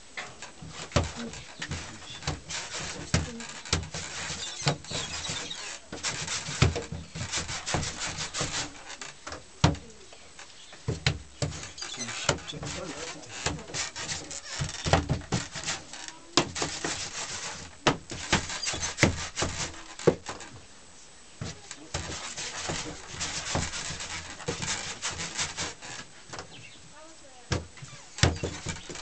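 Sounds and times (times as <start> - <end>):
hands kneading dough: 0.5 - 9.0, 10.8 - 20.6.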